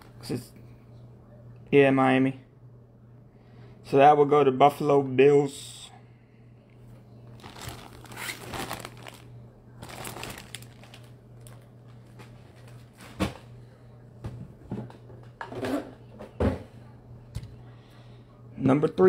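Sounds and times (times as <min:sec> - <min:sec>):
low steady hum: 0:00.0 - 0:19.0
plastic bag crinkling: 0:07.3 - 0:12.8.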